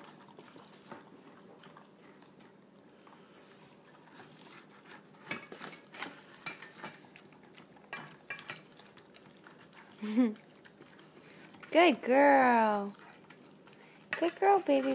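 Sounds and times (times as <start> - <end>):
dogs eating: 0.0 - 14.9
metal bowls clinking: 14.1 - 14.9.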